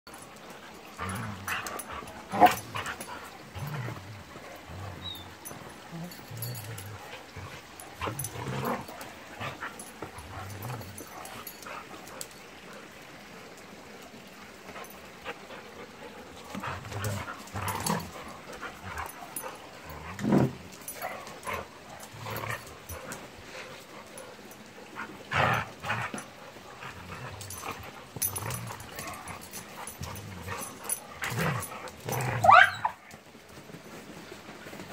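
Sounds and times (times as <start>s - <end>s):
dogs growling: 0.1s - 13.0s, 14.6s - 33.2s
dog yipping: 32.4s - 33.0s.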